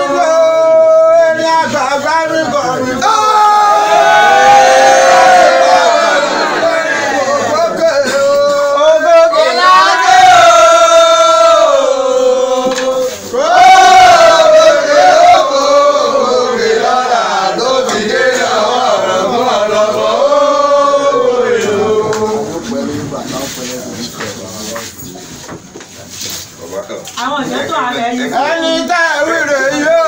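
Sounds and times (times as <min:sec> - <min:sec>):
group of voices chanting: 0:03.1 - 0:08.2, 0:09.0 - 0:22.6.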